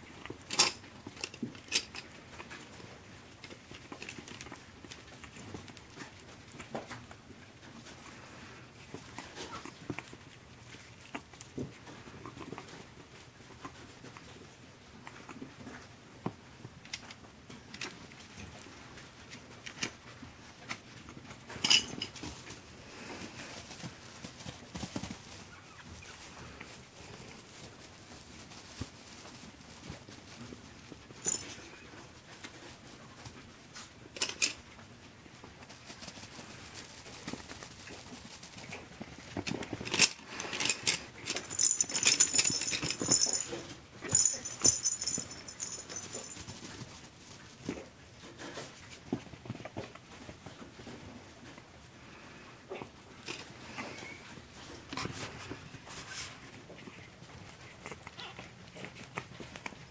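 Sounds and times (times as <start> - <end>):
puppies scrambling on bedding: 17.6 - 59.9.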